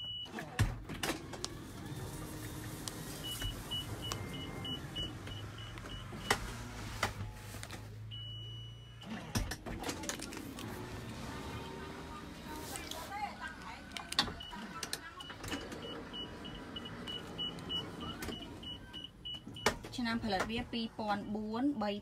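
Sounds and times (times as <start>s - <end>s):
sliding door motor humming: 0.9s - 7.8s, 9.1s - 18.7s.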